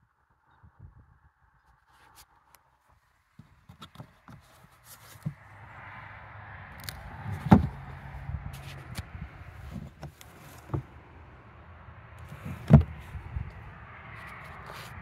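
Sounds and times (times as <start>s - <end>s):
rustling and handling noise: 3.4s - 5.5s, 8.5s - 11.0s, 14.2s - 15.0s.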